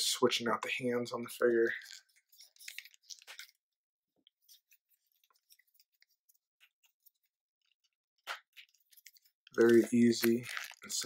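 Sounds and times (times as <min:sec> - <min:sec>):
plastic figure clicks and rustles: 0:01.7 - 0:03.6, 0:07.8 - 0:11.0.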